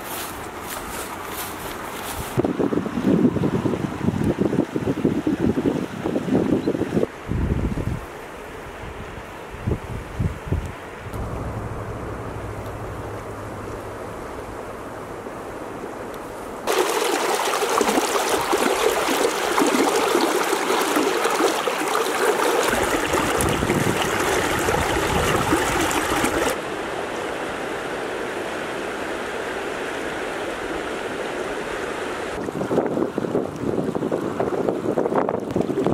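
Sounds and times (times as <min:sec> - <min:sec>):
river water rushing over riffles: 0:11.2 - 0:35.9.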